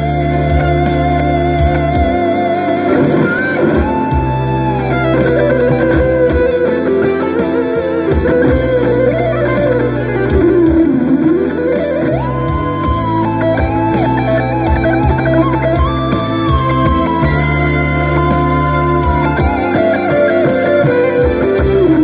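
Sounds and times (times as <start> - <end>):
electric guitar lead: 0.0 - 22.0
slow rock backing track: 0.0 - 22.0.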